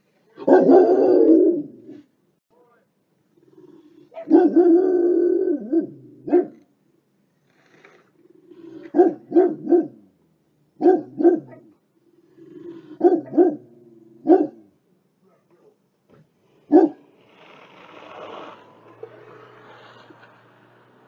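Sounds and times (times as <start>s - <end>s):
dog barking: 0.4s - 1.6s, 4.1s - 4.9s, 5.6s - 6.6s, 8.8s - 10.0s, 10.8s - 11.8s, 13.0s - 15.8s, 16.7s - 17.0s
dog growling: 3.4s - 4.3s, 8.1s - 9.2s, 12.0s - 14.2s.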